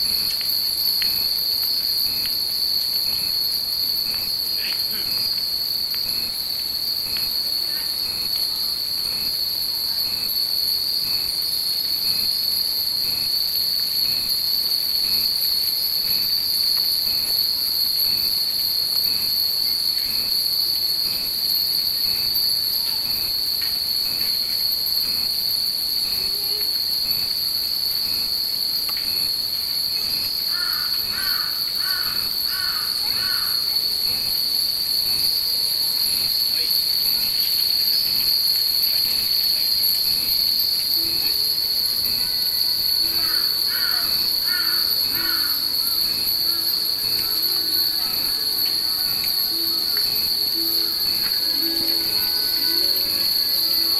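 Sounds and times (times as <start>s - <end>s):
cicadas droning: 0.0s - 53.9s
bird calling: 43.1s - 50.0s
wind chimes tinkling: 44.2s - 53.9s.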